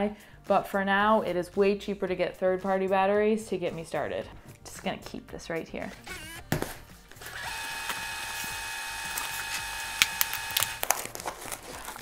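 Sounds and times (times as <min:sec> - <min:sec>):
tape fast-forward whir: 0:06.1 - 0:06.5, 0:07.2 - 0:10.9.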